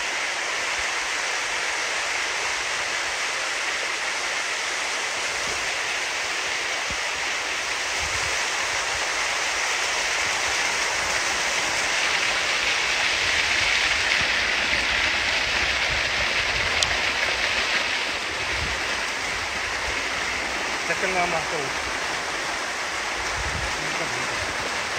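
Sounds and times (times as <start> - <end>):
creek rushing over rocks: 0.0 - 24.9.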